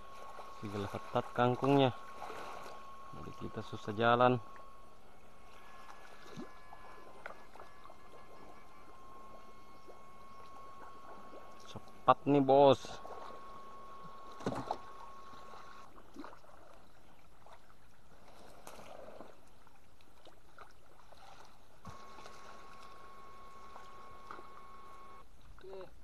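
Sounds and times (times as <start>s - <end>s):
thin high tone: 0.0s - 15.9s
muddy water splashing: 0.0s - 25.0s.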